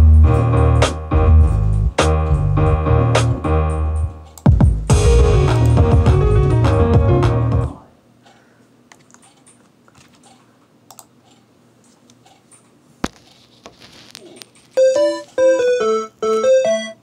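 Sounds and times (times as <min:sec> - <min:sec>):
music from speaker: 0:00.0 - 0:07.8.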